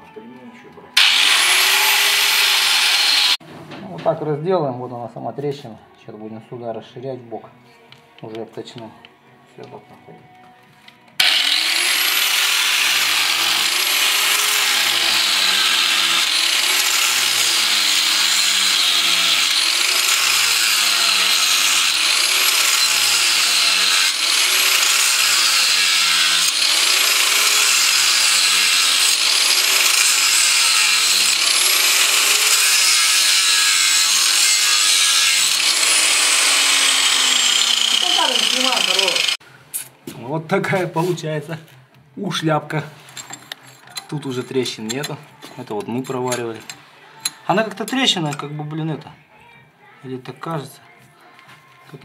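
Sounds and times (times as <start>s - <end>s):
angle grinder cutting steel: 1.0s - 3.4s, 11.2s - 39.4s.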